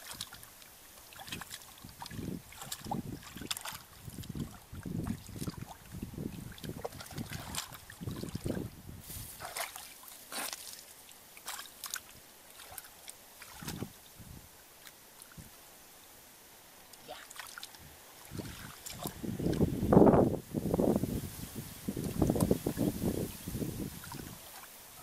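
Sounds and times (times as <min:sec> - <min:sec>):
hands sloshing in muddy water: 0:00.0 - 0:14.0, 0:17.0 - 0:19.7.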